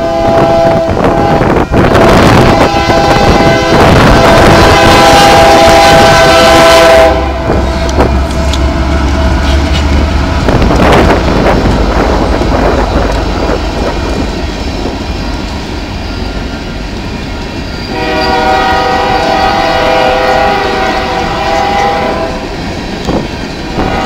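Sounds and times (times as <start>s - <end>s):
train air horn: 0.0s - 9.9s, 17.9s - 22.5s, 23.8s - 24.0s
locomotive engine rumble: 0.0s - 24.0s
train wheels rattling on rails: 0.0s - 24.0s.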